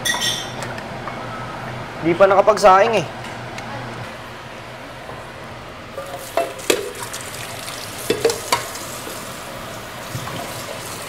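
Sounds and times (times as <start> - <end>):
metal pots and utensils clanking: 0.0 - 0.6, 6.0 - 7.2, 8.0 - 8.9.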